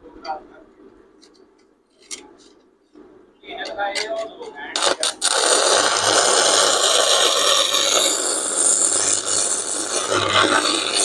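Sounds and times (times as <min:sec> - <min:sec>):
welding arc crackling: 0:04.8 - 0:11.0.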